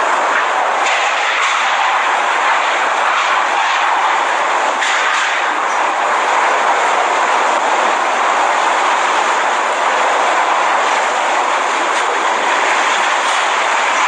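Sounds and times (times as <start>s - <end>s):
driving rain: 0.0s - 14.0s
hurricane wind: 0.0s - 14.0s.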